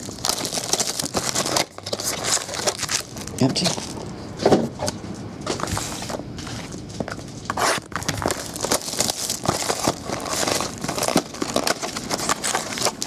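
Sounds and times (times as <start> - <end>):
plastic wrap crinkling and tearing: 0.0 - 4.0, 7.4 - 13.0.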